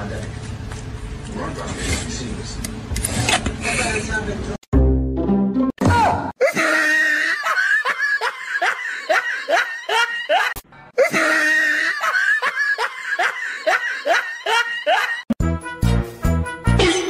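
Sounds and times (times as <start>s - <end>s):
rapid rhythmic laughter: 6.4s - 15.4s.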